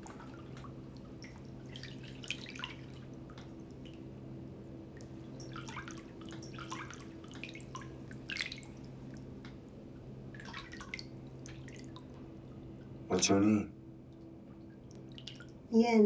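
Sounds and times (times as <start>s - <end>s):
low room hum: 0.0s - 16.0s
soft wet clicks: 3.0s - 4.0s, 5.0s - 9.6s, 10.4s - 12.9s, 14.1s - 15.6s.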